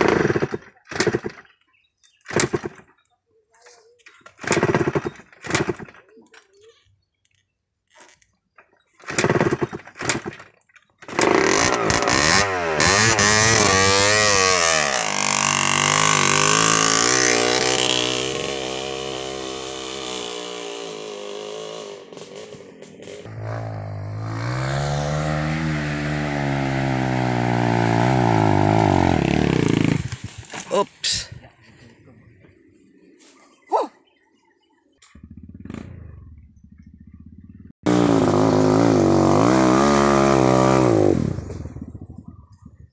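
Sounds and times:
dirt bike engine revving: 0.0s - 1.4s, 11.0s - 30.7s, 35.0s - 42.2s.

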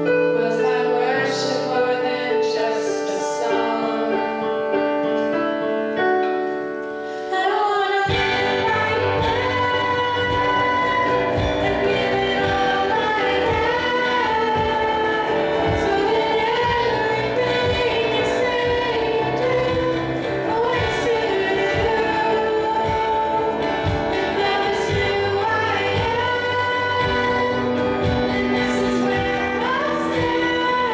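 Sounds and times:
electric guitar: 0.0s - 30.9s
keyboard: 0.0s - 30.9s
girl singing into a microphone: 0.1s - 4.5s, 7.2s - 30.9s
drum beats: 8.1s - 30.9s.

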